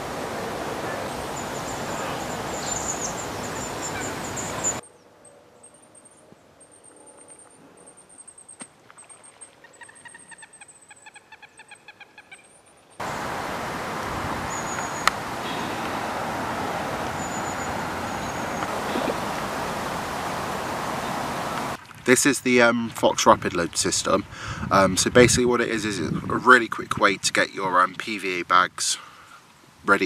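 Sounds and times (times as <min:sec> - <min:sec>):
loud steady rushing noise: 0:00.0 - 0:04.8, 0:13.0 - 0:21.8
bird calling in rapid notes: 0:00.6 - 0:04.8, 0:13.5 - 0:21.8.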